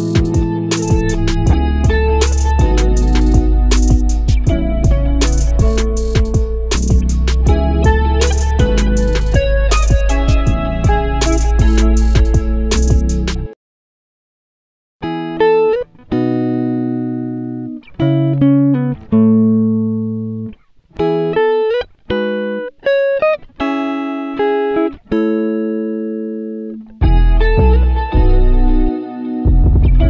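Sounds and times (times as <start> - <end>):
plucked string instrumental music: 0.0 - 13.6, 15.0 - 30.0.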